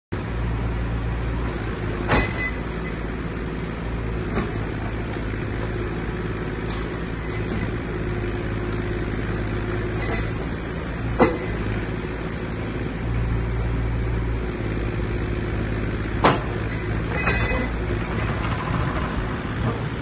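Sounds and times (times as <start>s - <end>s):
diesel engine running: 0.1s - 20.0s
sharp metal clank: 16.3s - 17.8s.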